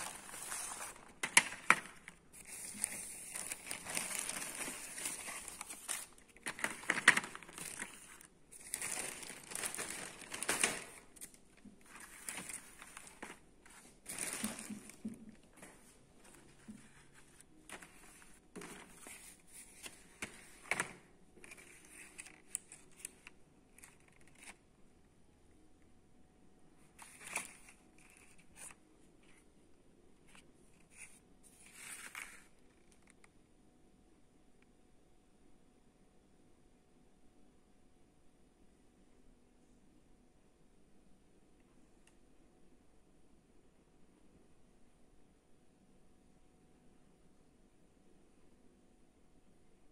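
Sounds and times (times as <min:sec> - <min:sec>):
cardboard boxes rustling: 0:11.8 - 0:19.6.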